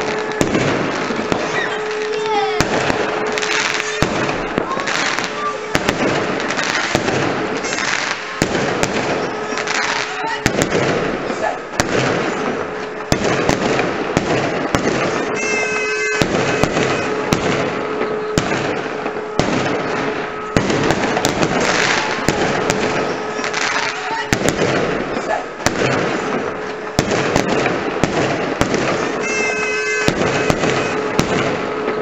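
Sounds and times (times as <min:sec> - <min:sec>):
fireworks bangs: 0:00.0 - 0:32.0
fireworks crackle: 0:00.0 - 0:32.0
high whistling tone: 0:15.1 - 0:17.3, 0:29.2 - 0:31.1.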